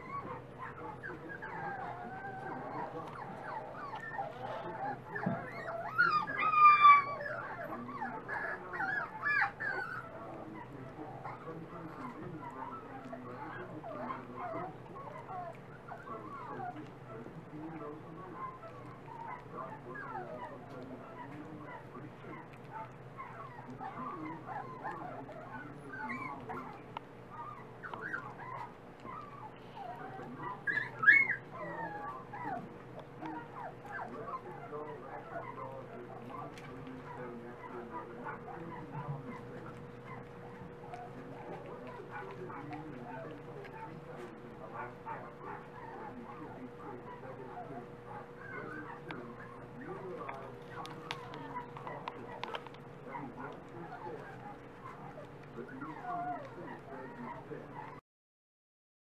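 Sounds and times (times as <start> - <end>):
puppy squealing loudly: 0.0 - 10.2, 22.4 - 32.6
puppies whining and yipping: 0.0 - 58.0.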